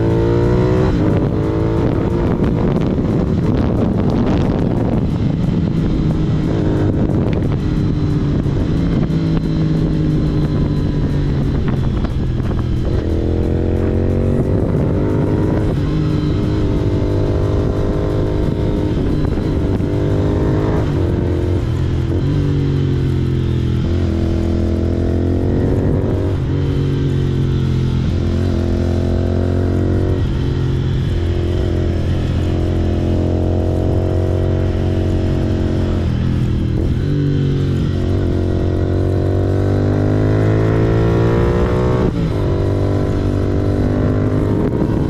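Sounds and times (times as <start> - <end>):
motorcycle engine revving: 0.0 - 45.0.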